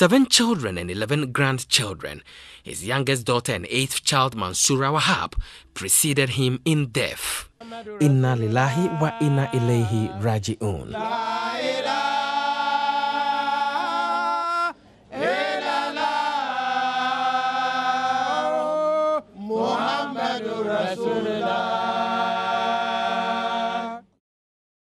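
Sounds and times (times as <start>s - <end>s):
voices chanting: 7.6s - 10.3s, 10.9s - 24.0s.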